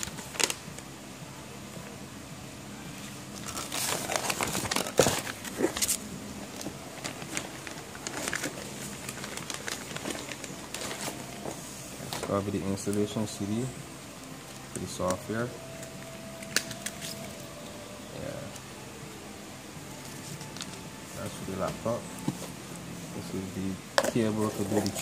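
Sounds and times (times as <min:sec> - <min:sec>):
plastic bags crinkling: 0:03.3 - 0:13.2
cardboard rustling: 0:03.4 - 0:12.5.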